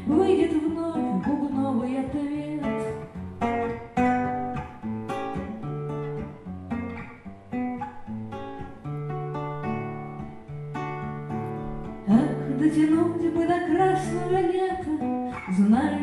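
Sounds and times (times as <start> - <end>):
solo acoustic guitar: 0.0 - 16.0.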